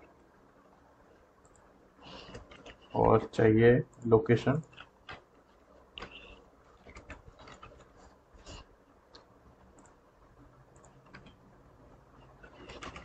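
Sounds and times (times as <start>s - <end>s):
keyboard and mouse clicks: 1.4s - 2.9s, 3.9s - 8.0s, 9.1s - 10.0s, 10.7s - 11.4s, 12.4s - 13.0s.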